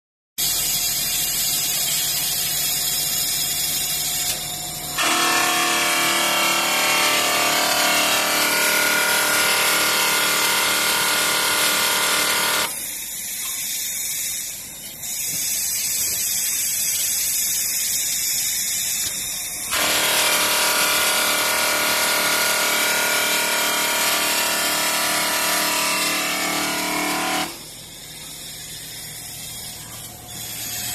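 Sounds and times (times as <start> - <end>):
polishing machine whirring grind: 4.9 - 12.8, 19.7 - 30.9.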